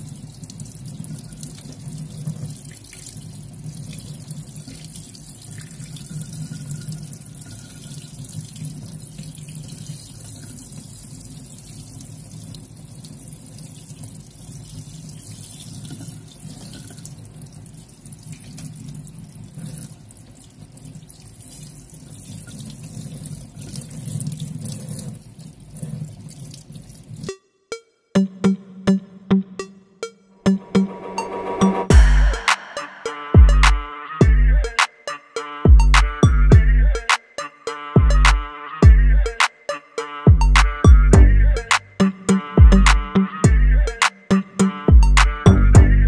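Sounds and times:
tap water running into sink: 0.0s - 27.3s.

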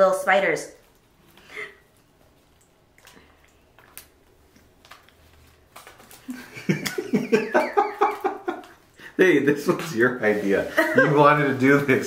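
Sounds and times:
woman and man laughing: 6.3s - 8.8s, 10.7s - 11.3s.

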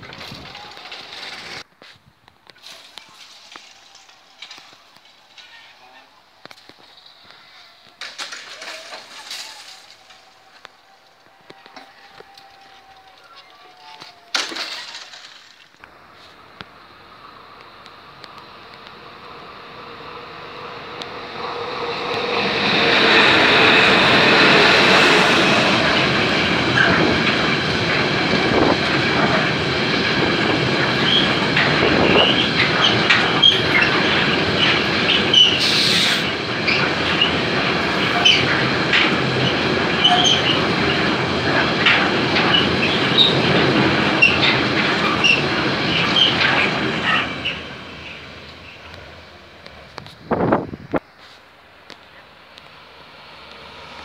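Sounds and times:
train wheels clattering over rails: 0.0s - 1.7s, 7.8s - 15.6s, 20.6s - 51.1s
wheel squeals: 31.0s - 41.2s, 41.8s - 49.0s.

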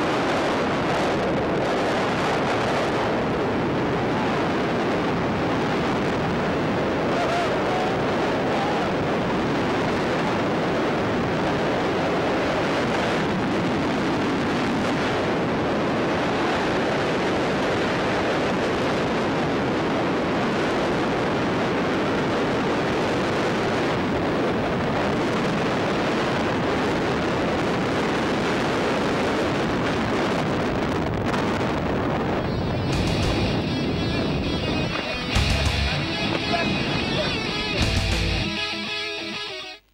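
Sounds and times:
wind buffeting microphone: 0.0s - 38.6s.

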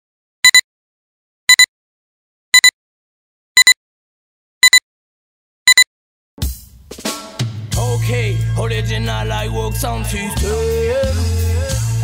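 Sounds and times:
short high double beeps: 0.4s - 0.6s, 4.6s - 4.8s, 5.7s - 5.9s.

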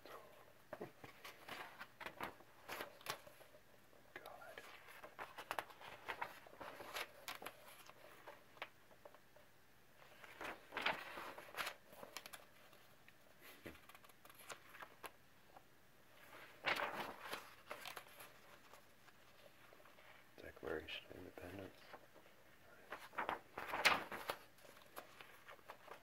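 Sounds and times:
paper pages rustling: 0.8s - 3.6s, 4.2s - 9.2s, 10.0s - 15.2s, 16.1s - 26.0s.

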